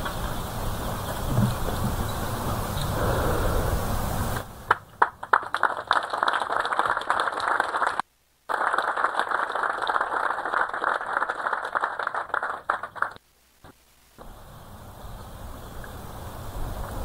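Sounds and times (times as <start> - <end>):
audience applauding: 4.7 - 13.2.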